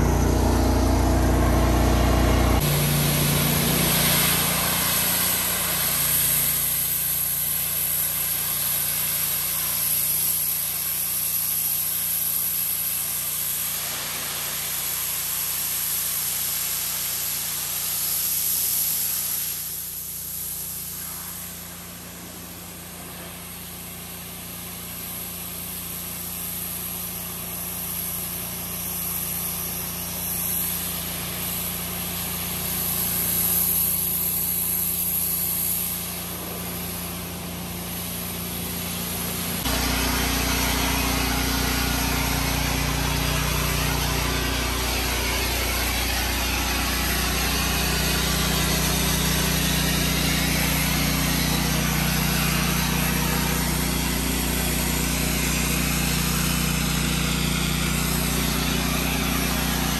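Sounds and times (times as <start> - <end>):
machine hum: 0.0 - 4.7, 39.6 - 55.5
pressure washer water spray: 0.0 - 59.9.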